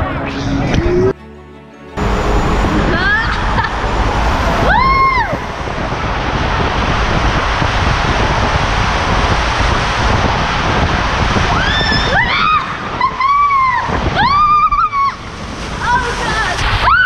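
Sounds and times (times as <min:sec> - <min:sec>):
high squeal: 0:02.0 - 0:06.7
rushing water and air: 0:02.0 - 0:17.0.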